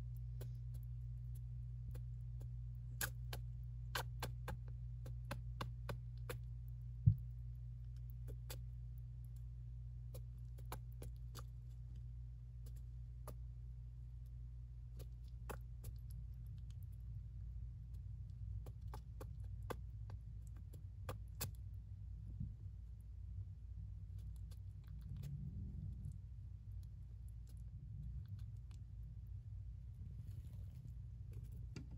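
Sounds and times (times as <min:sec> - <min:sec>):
hamster cracking seeds: 0:00.0 - 0:23.0
steady low hum: 0:00.0 - 0:31.9.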